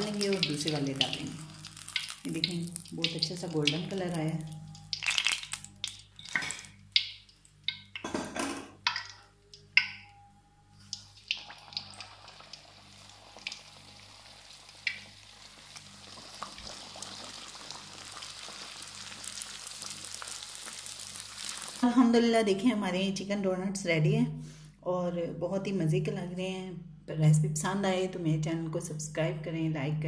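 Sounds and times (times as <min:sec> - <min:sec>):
dough deep-frying in oil: 0:00.0 - 0:08.0, 0:10.8 - 0:22.1.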